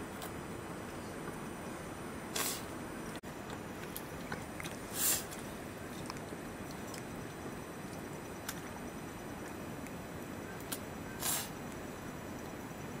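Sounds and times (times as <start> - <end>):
short hiss: 2.3 - 2.7, 4.9 - 5.4, 11.2 - 11.6
rice squishing and chewing: 3.4 - 8.8.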